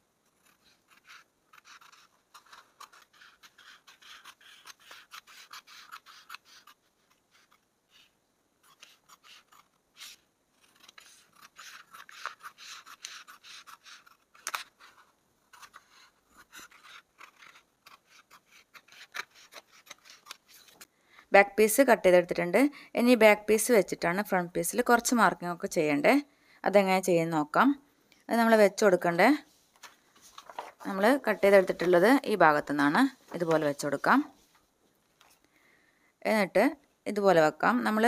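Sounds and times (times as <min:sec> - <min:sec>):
scissors cutting cloth: 0:00.2 - 0:20.8.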